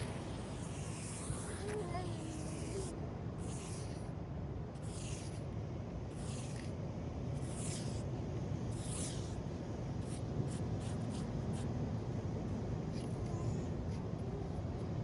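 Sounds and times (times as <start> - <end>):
sand swishing: 0.0 - 4.1.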